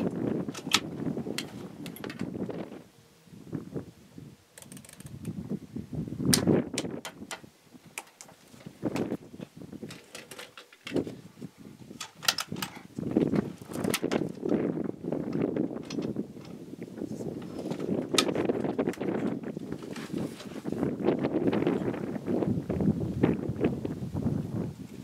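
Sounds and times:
air rifle clicks and knocks: 0:00.0 - 0:02.3, 0:12.0 - 0:14.6, 0:15.3 - 0:16.6.

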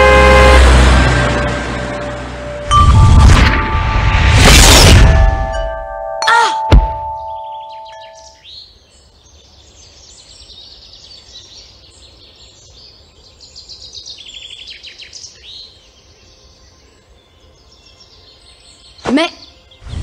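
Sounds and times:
birds chirping and trilling: 0:05.2 - 0:20.0.

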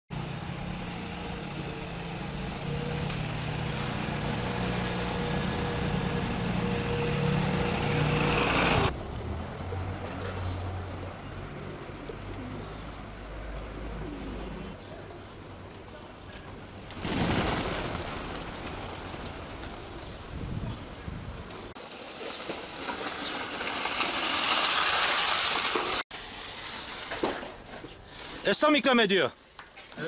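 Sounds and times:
motorcycle engine running: 0:00.3 - 0:08.9
pigeons cooing: 0:01.0 - 0:08.4, 0:09.8 - 0:15.8.

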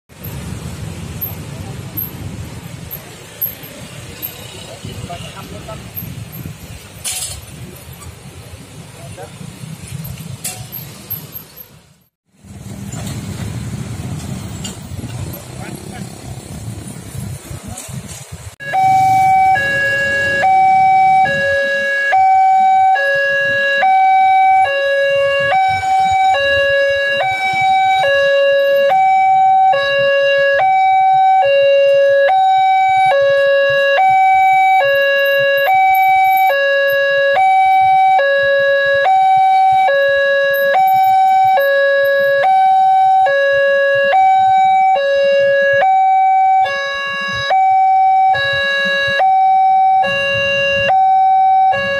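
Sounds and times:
level-crossing two-tone alarm: 0:18.6 - 0:51.9.

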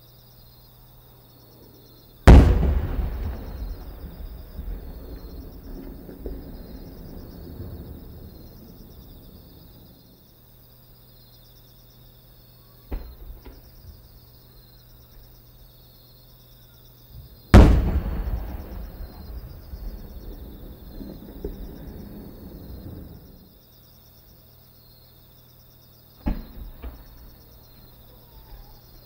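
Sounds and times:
insects chirping: 0:00.0 - 0:29.0
firework shell bursting boom: 0:02.3 - 0:07.2, 0:17.6 - 0:23.1
firework launch thump: 0:02.3 - 0:08.6, 0:12.9 - 0:13.7, 0:17.6 - 0:23.2, 0:26.2 - 0:27.4.

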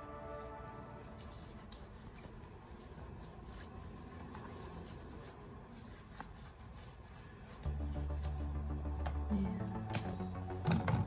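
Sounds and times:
hands rubbing together: 0:00.1 - 0:08.8.

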